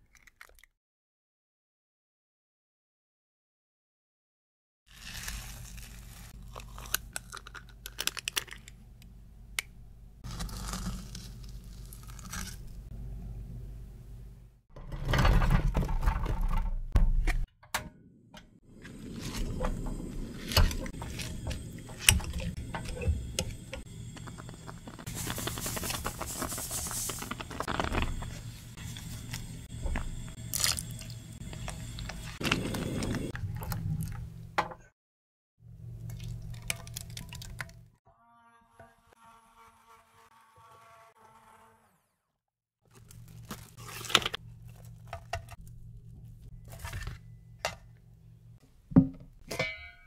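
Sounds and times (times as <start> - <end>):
strawberries squishing and scraping: 4.9 - 8.4, 10.2 - 12.9, 18.8 - 34.2, 42.9 - 47.2
sugar pouring with a hiss: 24.2 - 29.6.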